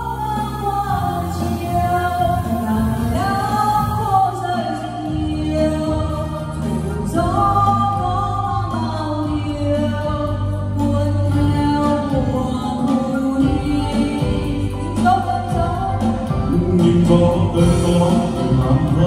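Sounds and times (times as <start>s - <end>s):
gliding vocal notes: 0.0s - 19.0s
low bass line: 5.1s - 19.0s.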